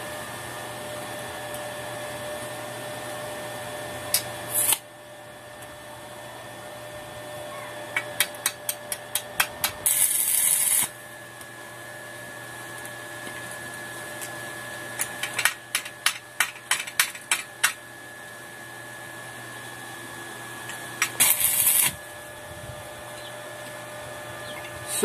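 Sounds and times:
welding arc crackling: 4.1 - 4.8, 8.2 - 11.0, 21.0 - 22.0.

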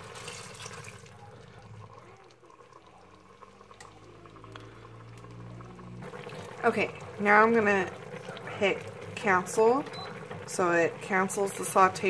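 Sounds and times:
chicken sauteing: 0.0 - 12.0
water pouring into a hot pot: 0.0 - 12.0.

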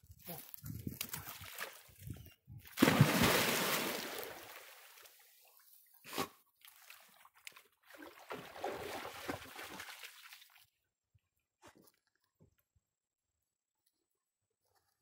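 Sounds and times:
dog splashing in water: 2.8 - 4.9, 7.8 - 10.6.

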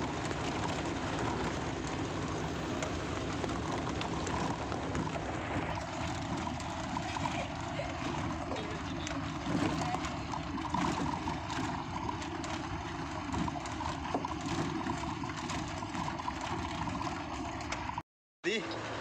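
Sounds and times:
knocks and rattles: 0.0 - 18.0
vehicle rumbling on gravel: 0.0 - 18.0.

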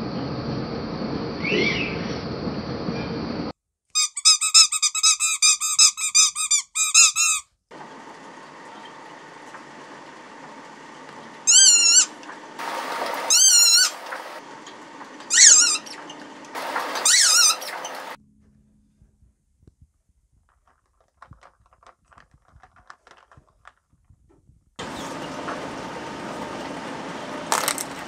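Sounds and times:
rubber toy squeaking: 4.0 - 7.5
shredder humming: 7.7 - 18.2, 24.8 - 28.0.

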